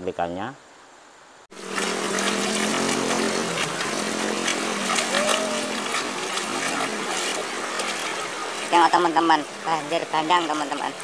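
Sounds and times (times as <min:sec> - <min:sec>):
flowing water hissing: 0:01.5 - 0:11.0
small motorcycle engine running: 0:01.6 - 0:07.0.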